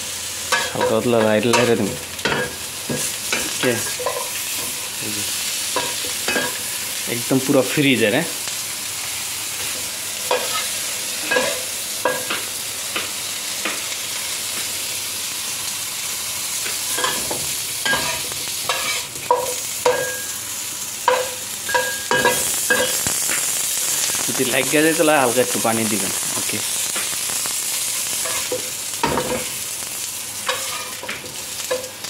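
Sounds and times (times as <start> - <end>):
fish sizzling in a wok: 0.0 - 32.0
spatula scraping and clinking on pan: 0.5 - 4.8, 10.3 - 10.7, 16.9 - 20.4, 21.1 - 23.5, 28.2 - 29.5, 30.5 - 32.0.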